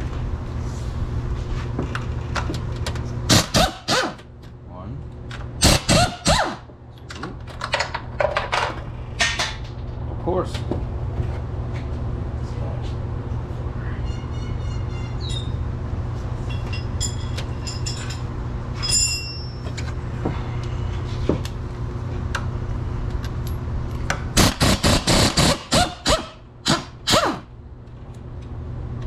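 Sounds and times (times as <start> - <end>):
steady low hum: 0.0 - 29.0
air ratchet bursts: 3.3 - 4.2, 5.6 - 6.6, 24.4 - 27.5.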